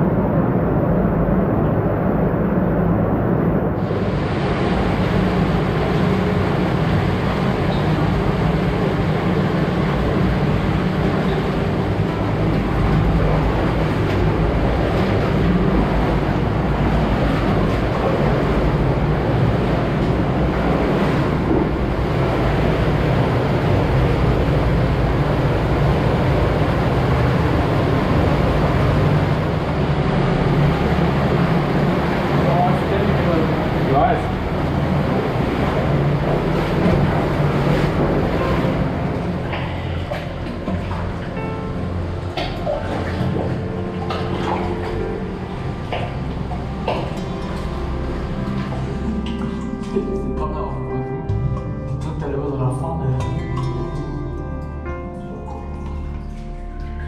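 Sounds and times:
underground stream rushing: 0.0 - 57.0
splashing of wading: 3.8 - 52.2, 53.2 - 57.0.

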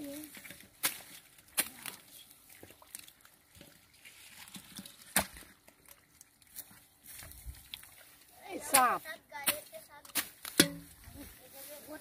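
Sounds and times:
hands squelching in wet mud: 0.0 - 9.0.

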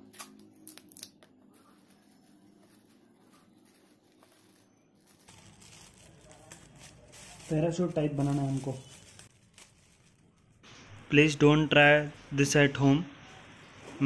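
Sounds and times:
plastic sheet rustling: 1.3 - 11.0.

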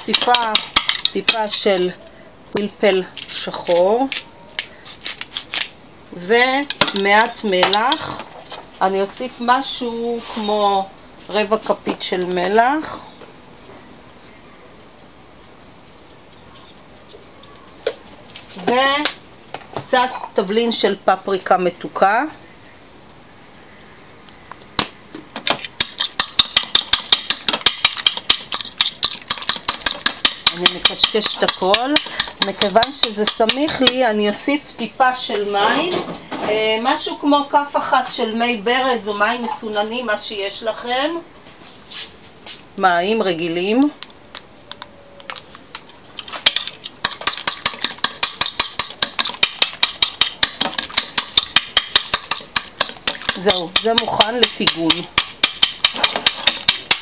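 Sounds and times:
fork beating egg on plate: 25.8 - 34.0, 44.3 - 57.0.

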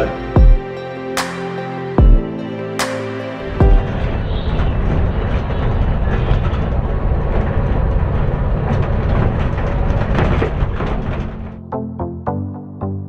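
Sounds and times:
vehicle road rumble: 3.5 - 11.6.

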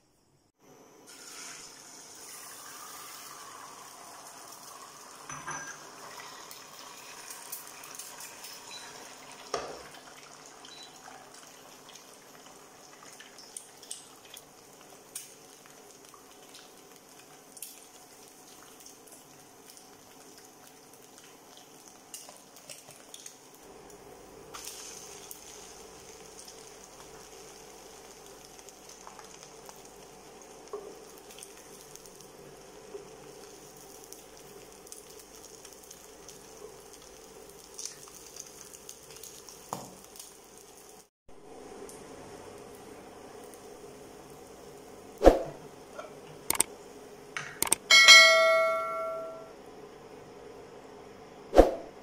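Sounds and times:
egg sizzling in a pan: 1.0 - 45.9
utensils knocking against pan: 47.4 - 49.4
low steady hum: 47.8 - 51.0.

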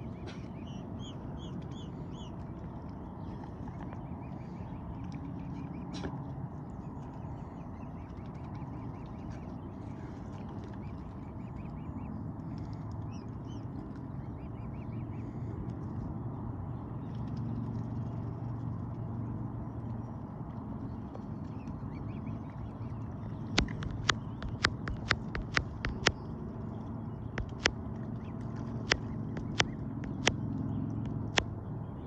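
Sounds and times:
cygnets peeping: 0.0 - 15.4, 21.4 - 31.5
bills dabbling in water: 20.9 - 31.6.

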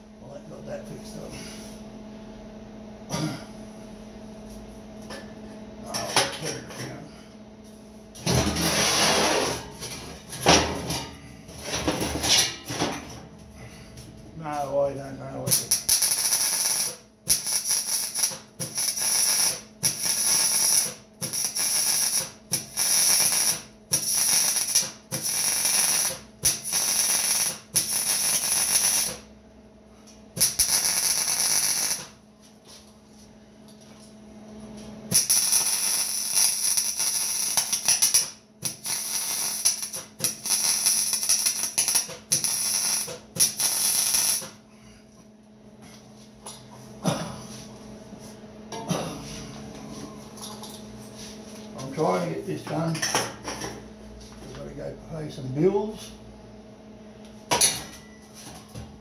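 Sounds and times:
steady low hum: 0.0 - 59.0
electric welding crackling: 15.4 - 29.3, 30.4 - 32.2, 35.1 - 44.6.

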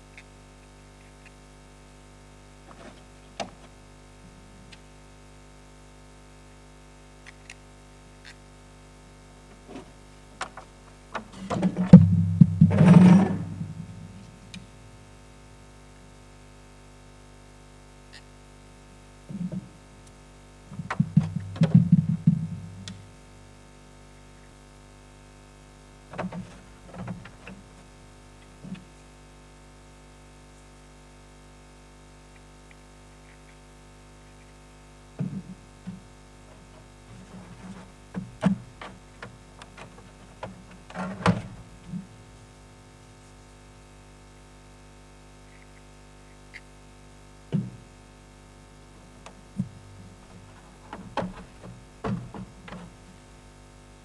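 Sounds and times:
steady low hum: 6.5 - 54.0
plastic parts knocking and rubbing: 9.6 - 14.4, 20.7 - 23.0, 26.1 - 27.7, 35.2 - 42.2, 49.2 - 53.1.

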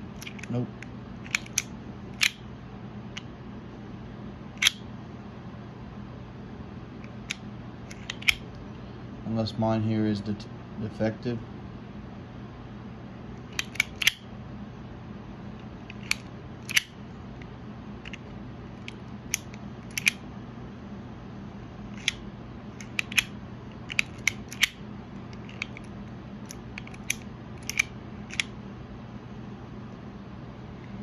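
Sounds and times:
faint low hum: 0.0 - 31.0
utility knife mechanism clicking: 0.2 - 0.5, 1.2 - 2.4, 13.4 - 14.2, 15.9 - 16.9, 18.8 - 20.2, 21.9 - 22.2, 22.8 - 28.5.

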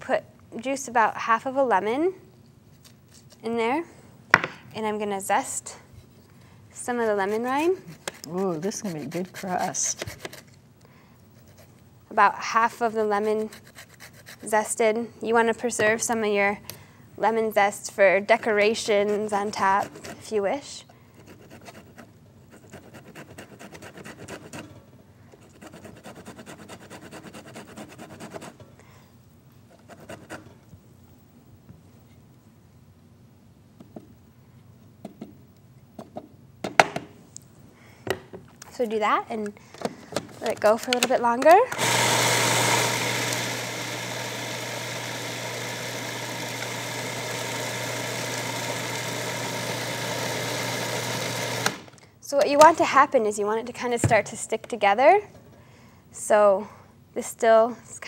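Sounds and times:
grater scraping lemon rind: 6.8 - 10.5, 12.8 - 14.5, 18.8 - 20.3
food processor motor humming: 41.7 - 51.9.

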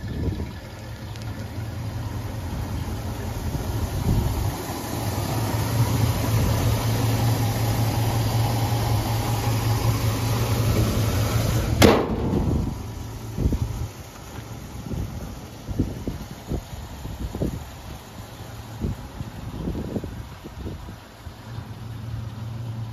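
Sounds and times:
pickup engine idling: 0.0 - 22.9
sharp bump: 11.8 - 12.9.

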